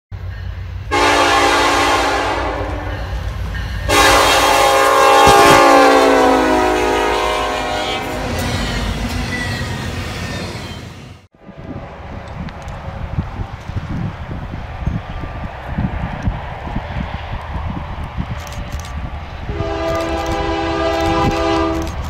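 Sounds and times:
train rumbling past: 0.1 - 22.0
locomotive horn blasts: 0.9 - 3.2, 3.9 - 8.9, 19.5 - 22.0.

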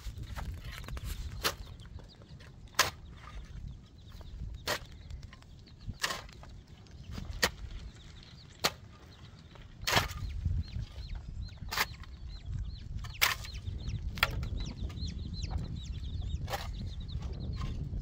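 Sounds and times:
metal shovel scraping stony ground: 0.0 - 1.8, 2.4 - 3.6, 4.6 - 8.9, 9.8 - 10.5
chicks peeping: 0.0 - 18.0.

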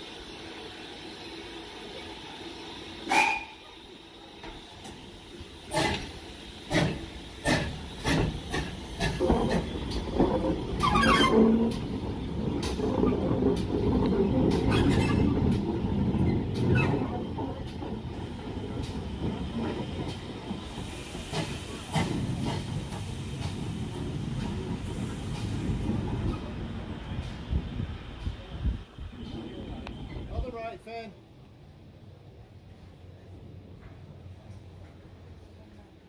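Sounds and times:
steam locomotive chuffs: 0.0 - 30.6
train rumbling past: 0.0 - 36.0
steam blast: 4.6 - 10.0.

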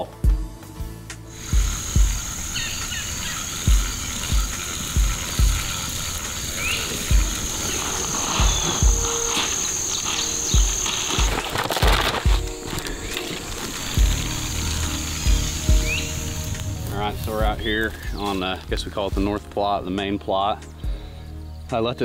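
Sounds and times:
low music beat thumps: 0.0 - 2.5, 3.6 - 6.4, 7.0 - 7.6, 8.2 - 9.3, 13.9 - 20.0
faint insect chirps: 1.3 - 16.9
insects trilling: 1.3 - 19.4.

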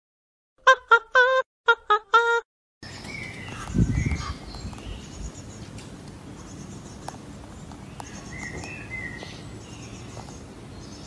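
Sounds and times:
birds chirping and trilling: 2.8 - 11.0.

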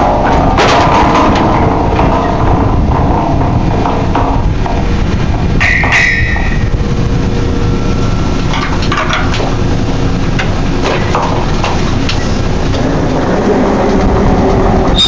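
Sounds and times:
metal-on-metal clanks: 0.0 - 6.8, 8.4 - 9.6
machinery rumble: 0.0 - 15.0.

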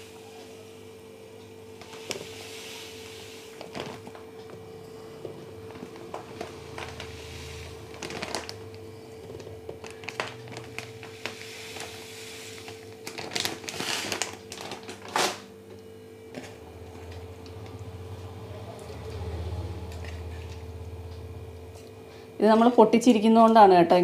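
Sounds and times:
faint steady hum: 0.0 - 24.0
sugar pouring hiss: 1.8 - 3.7, 6.4 - 8.5, 9.9 - 14.2
plastic bag crinkling: 3.5 - 4.2, 5.7 - 15.5.

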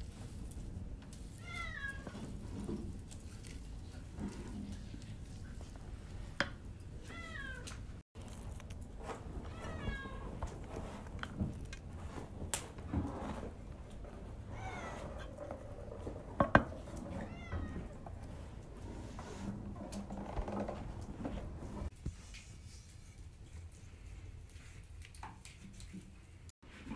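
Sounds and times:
cat meowing: 9.5 - 10.3.

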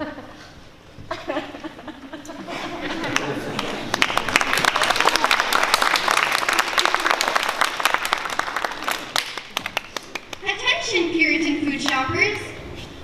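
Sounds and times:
audience applauding: 2.8 - 10.5.

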